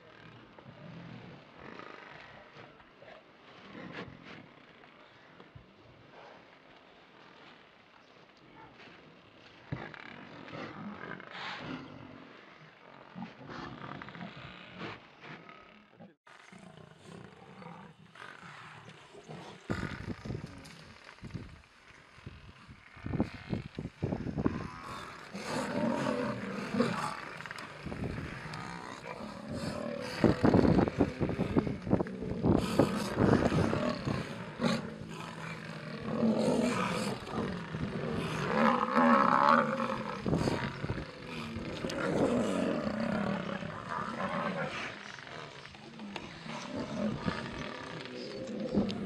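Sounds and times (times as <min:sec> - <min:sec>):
lion growling and roaring: 0:09.7 - 0:12.6, 0:13.2 - 0:21.6, 0:22.8 - 0:49.0.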